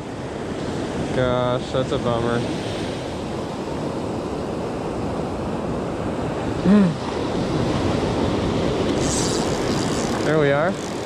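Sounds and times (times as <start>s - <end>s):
ocean surf breaking: 0.0s - 11.0s
wind: 0.0s - 11.0s
man humming: 6.6s - 7.0s.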